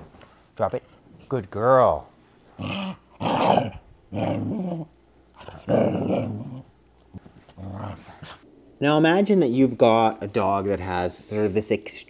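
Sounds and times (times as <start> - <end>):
dog growling: 2.6 - 6.7, 7.5 - 8.4.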